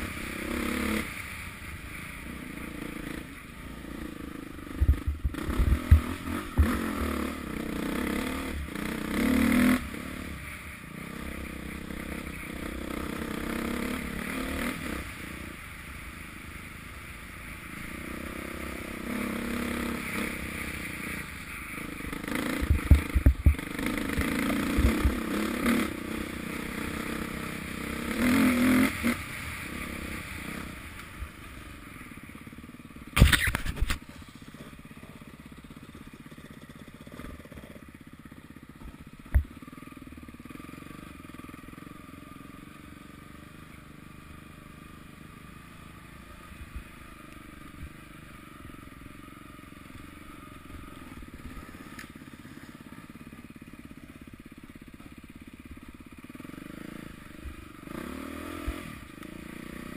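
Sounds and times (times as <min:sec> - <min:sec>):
motorbike engine revving: 0:02.4 - 0:15.7, 0:17.8 - 0:30.9, 0:56.1 - 0:59.9.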